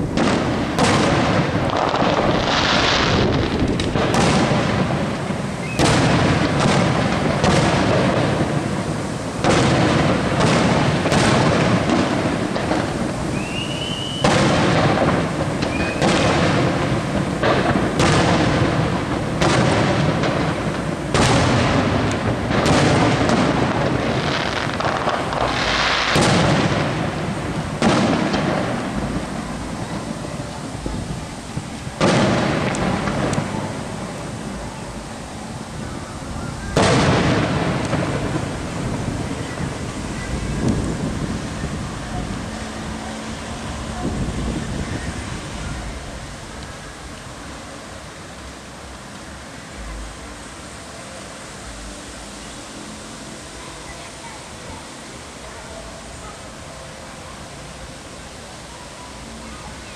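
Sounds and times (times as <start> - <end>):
firework shells bursting: 0.0 - 34.9, 36.5 - 43.8
rising firework whistle: 0.0 - 47.9
low rumble of echoes: 0.0 - 54.4.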